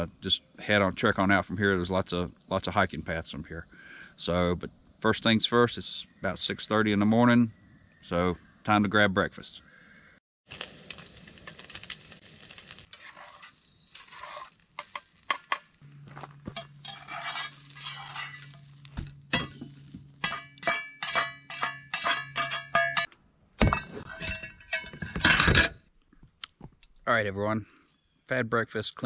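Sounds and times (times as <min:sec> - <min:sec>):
metal utensils clinking on cookware: 0:16.5 - 0:18.6, 0:20.2 - 0:23.1, 0:23.7 - 0:25.7.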